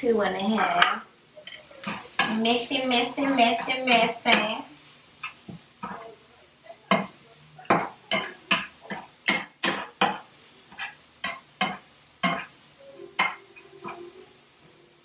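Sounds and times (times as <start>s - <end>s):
fork scraping frying pan: 9.8s - 12.5s.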